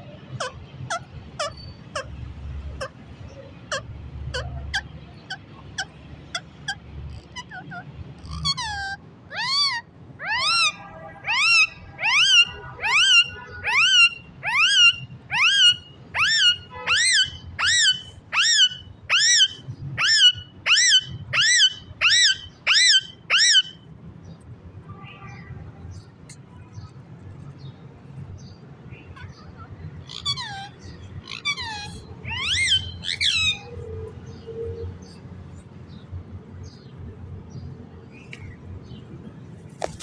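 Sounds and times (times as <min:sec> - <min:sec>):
parakeet calling: 0:00.4 - 0:23.8, 0:28.4 - 0:36.0.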